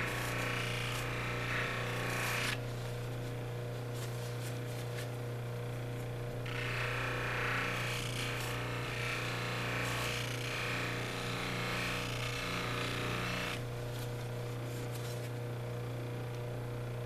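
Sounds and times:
polishing wheel motor hum: 0.0s - 2.7s, 6.0s - 13.9s.

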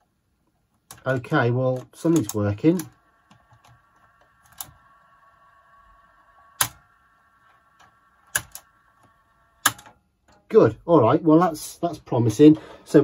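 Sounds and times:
cassette deck whine: 0.7s - 10.5s.

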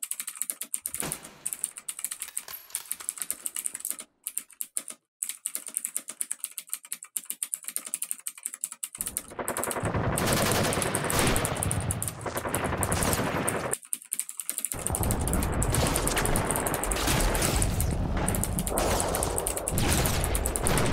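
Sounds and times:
rapid dry clicking: 0.0s - 2.3s, 2.9s - 20.9s
dense crackling clatter: 14.8s - 20.9s.

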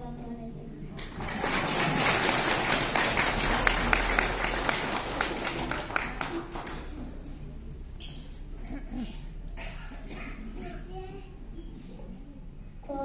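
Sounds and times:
audience applauding: 1.0s - 7.2s.

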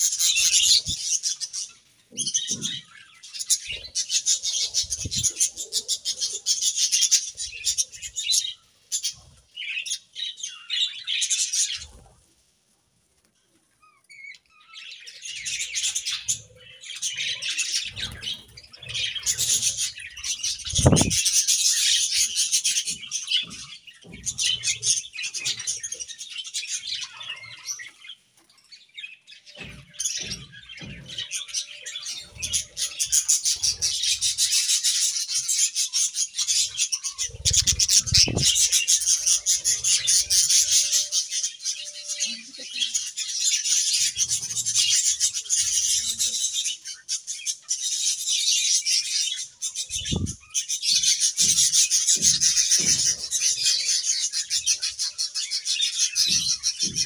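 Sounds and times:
budgerigars chirping and chattering: 0.0s - 12.2s, 13.7s - 57.0s
low thumps: 20.6s - 21.2s, 37.4s - 38.7s.

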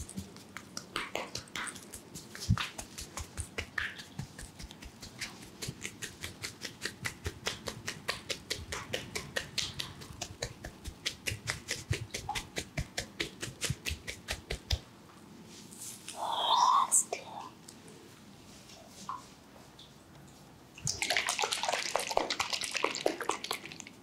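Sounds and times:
palms clapping on scalp: 0.0s - 14.9s, 20.9s - 23.9s.

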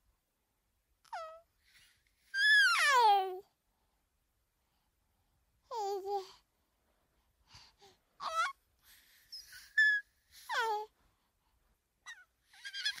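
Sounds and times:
baby squealing and gasping: 2.4s - 3.0s, 8.2s - 8.6s, 9.3s - 10.8s, 12.1s - 13.0s.

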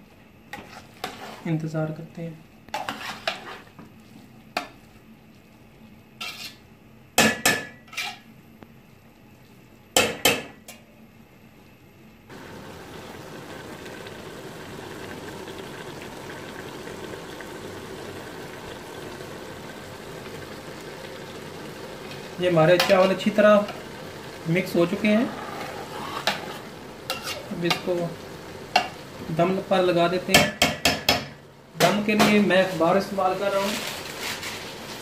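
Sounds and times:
rice simmering hiss: 12.3s - 30.4s, 31.8s - 35.0s
metal spoon knocking on pot: 30.3s - 31.4s.

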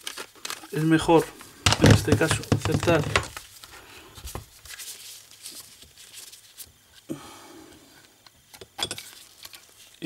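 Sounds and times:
plastic knock: 1.6s - 3.3s.

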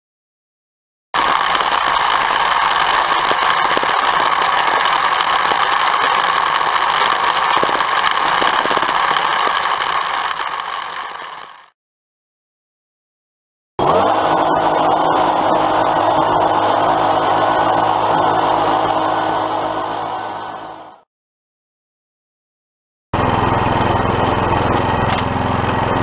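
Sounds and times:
line trimmer cutting grass: 1.2s - 11.6s, 13.8s - 21.0s, 23.2s - 26.0s.

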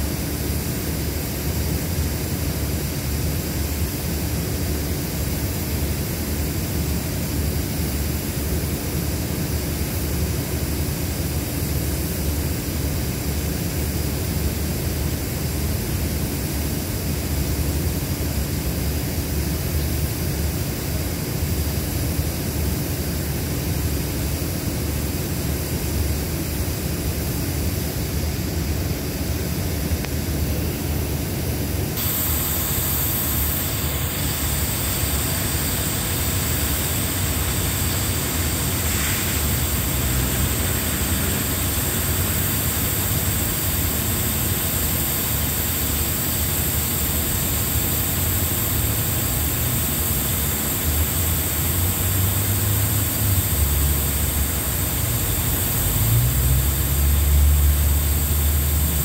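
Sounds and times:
diesel train engines idling: 32.0s - 45.9s.

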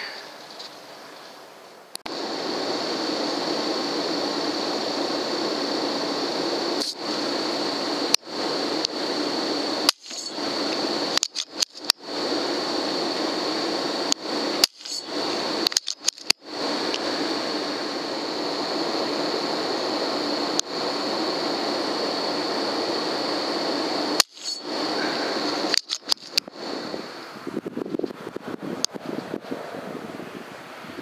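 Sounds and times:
faint high whine: 0.0s - 30.2s
mechanical whir and hiss: 2.1s - 29.4s
sharp clicks: 9.8s - 12.0s, 14.1s - 17.0s, 24.2s - 24.7s, 25.6s - 26.5s.

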